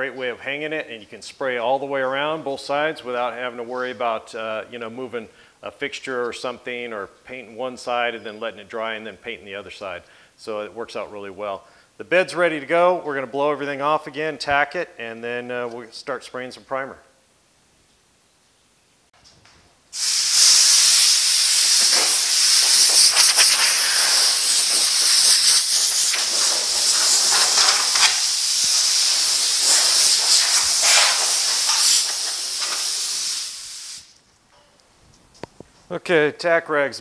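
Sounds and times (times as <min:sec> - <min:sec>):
compressed air blow gun hissing: 0:19.9 - 0:34.2.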